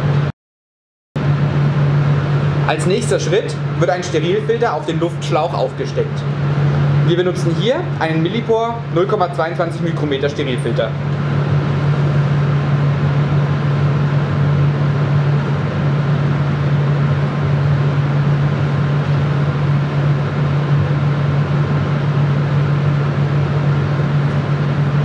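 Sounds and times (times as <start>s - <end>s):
cabinet blower running: 1.2s - 25.0s.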